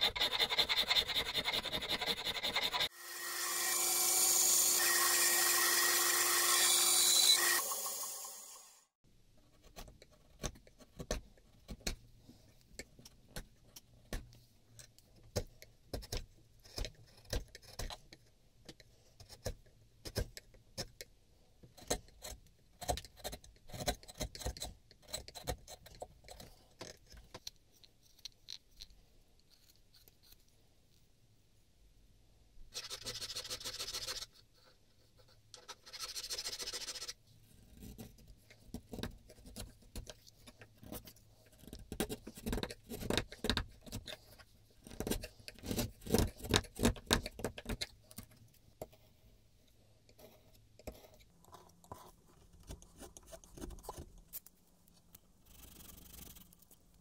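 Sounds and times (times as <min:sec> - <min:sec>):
file rasping on wood: 0:00.0 - 0:07.7.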